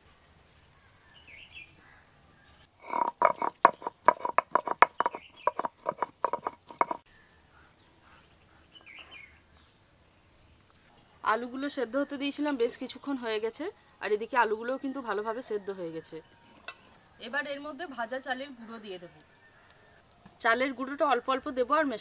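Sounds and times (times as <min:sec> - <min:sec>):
pestle pounding spices: 0:02.8 - 0:07.0.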